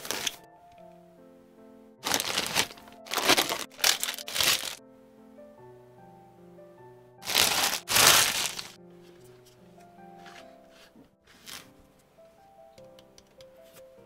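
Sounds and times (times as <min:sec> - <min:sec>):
packaging crinkling: 0:00.0 - 0:00.4, 0:02.0 - 0:04.8, 0:07.2 - 0:08.8
soft background music: 0:00.0 - 0:14.0.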